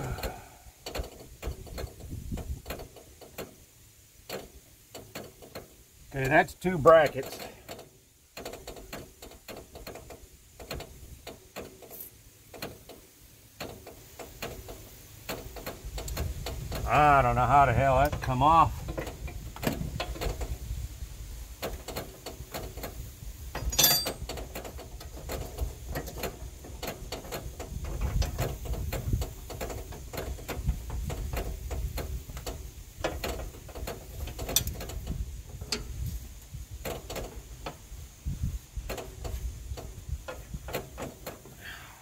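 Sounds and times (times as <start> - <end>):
ringing metal clank: 23.6 - 24.2
ratchet wrench clicking: 31.3 - 35.9.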